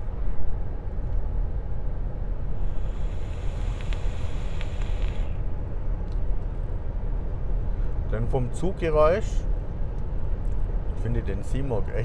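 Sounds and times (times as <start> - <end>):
airy hiss of vape draw: 2.5 - 5.5
faint clicks: 3.3 - 5.2.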